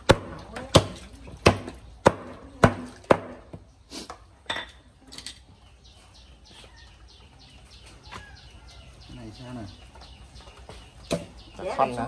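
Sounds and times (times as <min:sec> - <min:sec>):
cleaver chopping on wooden block: 0:00.0 - 0:03.6
faint bird chirps: 0:05.4 - 0:12.0.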